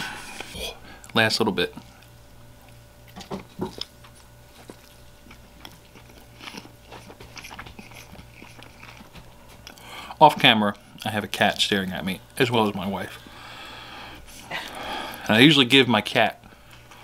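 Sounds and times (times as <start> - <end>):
person chewing: 0.0 - 11.1
steady low hum: 0.0 - 17.0.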